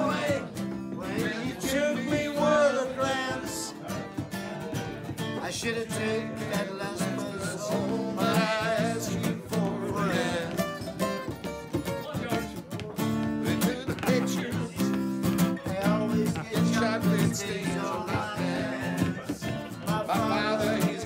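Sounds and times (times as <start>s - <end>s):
acoustic guitar strumming: 0.0s - 21.0s
person singing: 4.6s - 10.9s, 13.4s - 21.0s.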